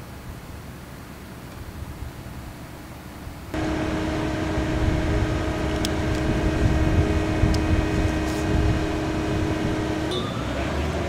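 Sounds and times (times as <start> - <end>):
crane engine humming: 2.2 - 11.0.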